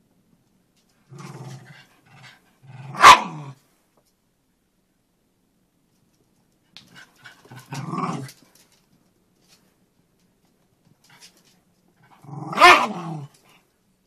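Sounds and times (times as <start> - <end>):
dog growling: 1.1 - 3.6, 7.5 - 8.4, 12.1 - 13.4.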